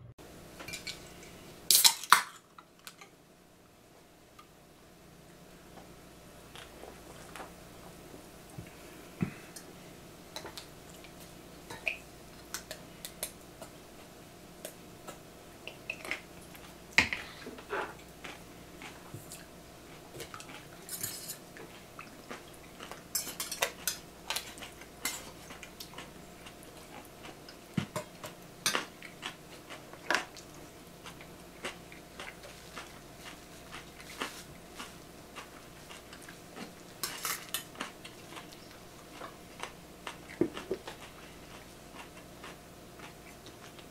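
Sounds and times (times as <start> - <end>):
faint steady hum: 0.0 - 43.9
cutlery clinking on bowls: 20.3 - 21.4, 23.1 - 25.4, 37.0 - 37.7.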